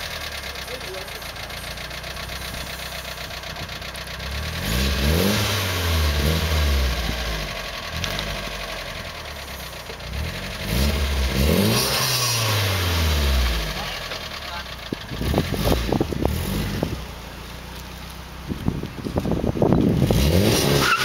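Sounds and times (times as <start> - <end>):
car engine idling and revving: 0.0 - 21.0.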